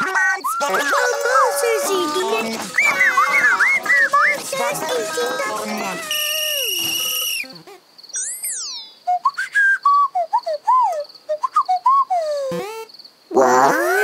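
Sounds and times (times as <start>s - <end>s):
held whistle tone: 6.0s - 7.6s, 8.2s - 12.3s
slide whistle glide: 6.0s - 7.6s, 8.2s - 12.2s
short whistled chirps: 6.0s - 12.3s.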